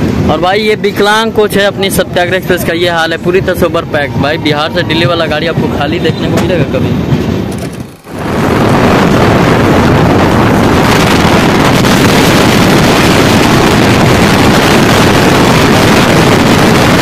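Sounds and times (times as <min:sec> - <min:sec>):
wind rushing over microphone: 0:00.0 - 0:17.0
train coaches rumbling on track: 0:01.0 - 0:10.9.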